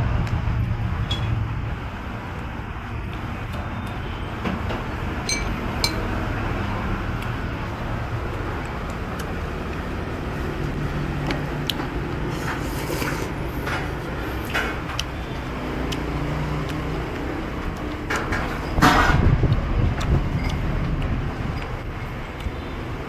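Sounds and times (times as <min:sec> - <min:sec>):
street traffic rumble: 0:00.0 - 0:23.0
utensil clinking on ceramic bowl: 0:05.3 - 0:06.1
noodles being slurped: 0:12.0 - 0:14.2.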